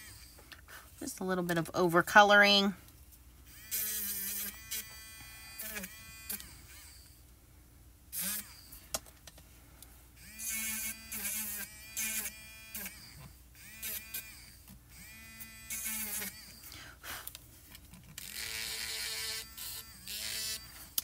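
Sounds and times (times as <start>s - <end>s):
electric eraser whirring: 3.5s - 7.2s, 8.1s - 8.8s, 10.2s - 16.7s, 18.1s - 21.0s.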